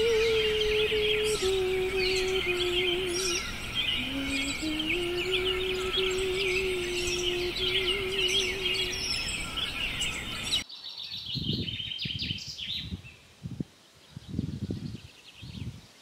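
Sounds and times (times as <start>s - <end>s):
woman singing long note: 0.0s - 9.2s
birds chirping and singing: 0.0s - 13.3s.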